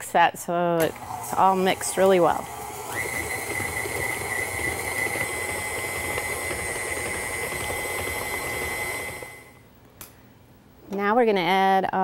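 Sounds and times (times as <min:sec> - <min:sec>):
stand mixer whining: 0:00.9 - 0:09.6.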